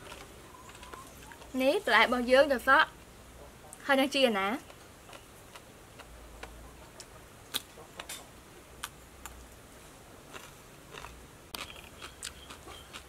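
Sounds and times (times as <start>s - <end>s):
person crunching food: 0.0s - 1.6s, 10.2s - 13.0s.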